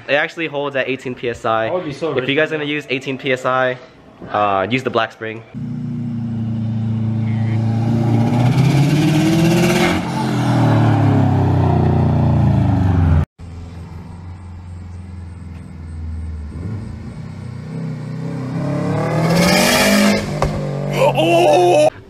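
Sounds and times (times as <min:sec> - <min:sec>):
car engine accelerating hard: 0:05.6 - 0:21.1.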